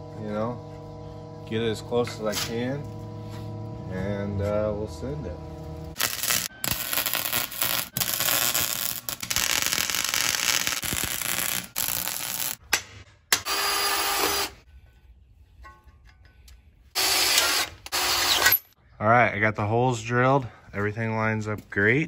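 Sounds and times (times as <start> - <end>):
arc welder crackling and hissing: 5.6 - 12.6.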